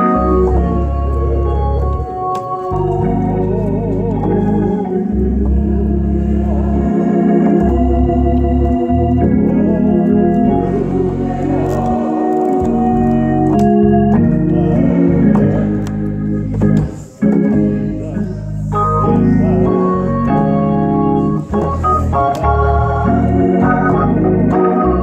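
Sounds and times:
organ playing gospel chords: 0.0s - 25.0s
steady bass: 2.8s - 25.0s.

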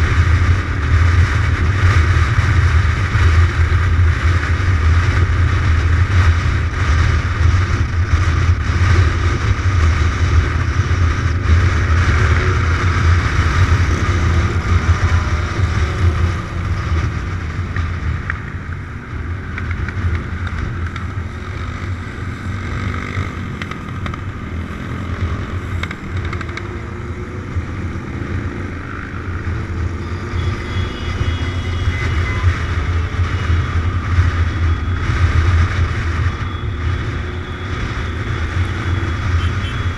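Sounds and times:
motorcycle engine droning: 0.0s - 39.9s.

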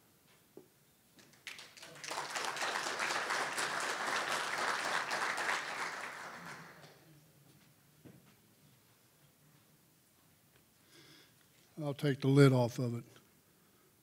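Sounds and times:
audience applauding: 1.2s - 7.0s.

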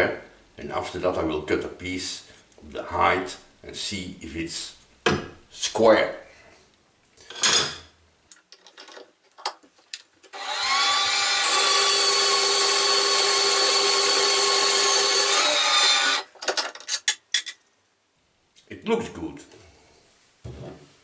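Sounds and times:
bandsaw cutting metal: 10.3s - 16.4s.

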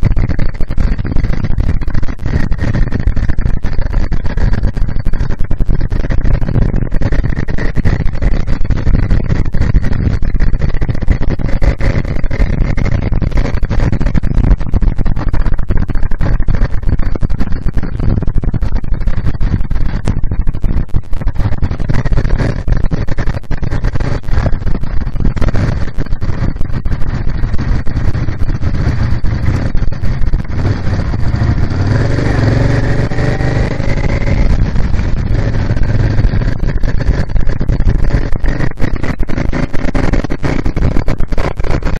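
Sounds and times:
motorcycle engine running: 0.0s - 41.9s
wind buffeting microphone: 0.0s - 41.9s.

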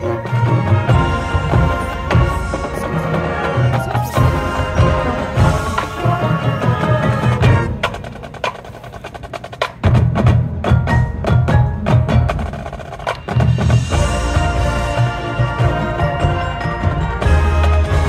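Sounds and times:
marching band with brass and drums: 0.0s - 18.0s.

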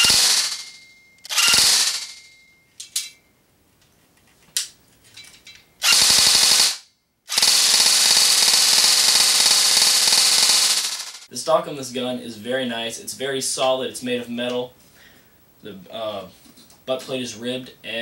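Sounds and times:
airsoft gun firing full auto: 0.0s - 2.3s, 5.8s - 11.3s.

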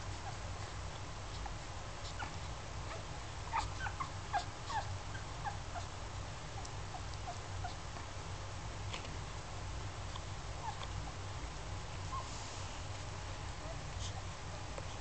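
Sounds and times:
steady low hum: 0.0s - 15.0s
puppies squeaking and whimpering: 2.0s - 5.9s.

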